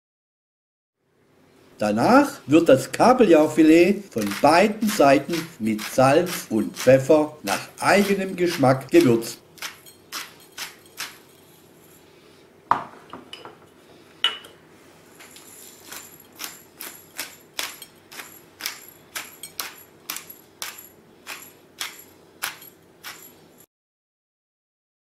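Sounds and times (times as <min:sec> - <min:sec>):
pepper mill grinding: 0:03.4 - 0:12.0, 0:15.1 - 0:23.6.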